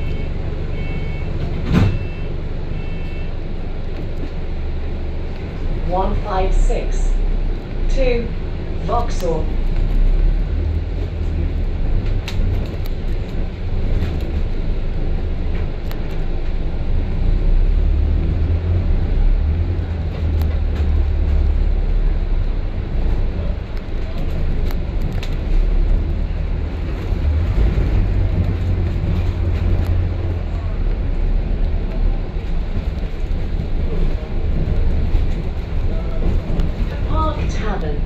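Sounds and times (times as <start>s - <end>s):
bus engine and road rumble: 0.0s - 38.0s.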